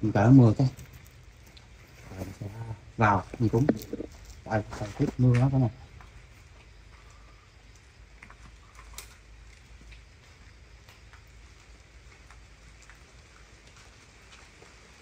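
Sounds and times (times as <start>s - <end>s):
light rain: 0.0s - 15.0s
drips ticking: 5.3s - 14.3s.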